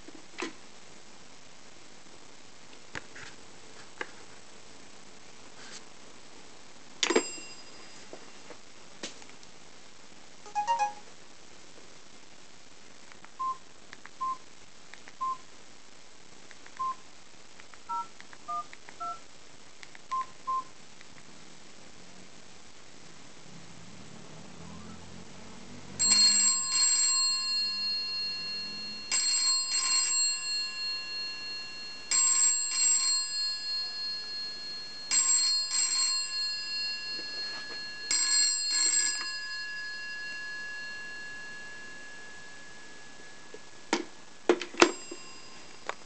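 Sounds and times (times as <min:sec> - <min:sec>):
telephone bell ringing: 0:07.1 - 0:08.0, 0:26.0 - 0:43.5, 0:44.8 - 0:45.8.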